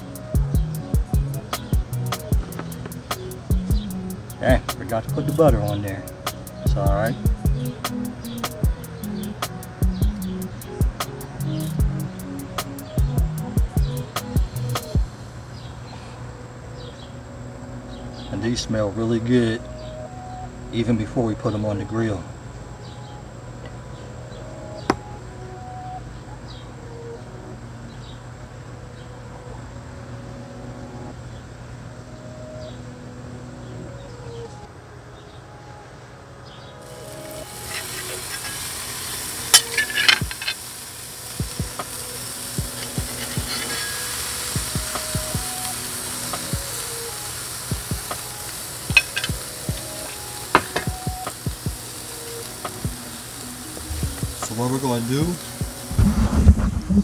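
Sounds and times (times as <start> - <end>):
meat sizzling on a grill: 0.0 - 15.3, 36.8 - 56.3
soft background tune: 0.0 - 57.0
utensil clicking on grate: 37.4 - 40.7, 42.6 - 44.2, 48.9 - 51.5.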